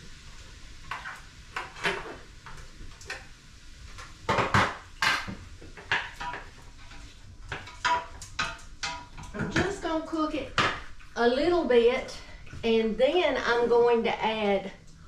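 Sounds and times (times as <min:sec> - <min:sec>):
vegetables cooking in butter: 0:00.0 - 0:15.0
utensil clinking against a pan: 0:07.5 - 0:09.7.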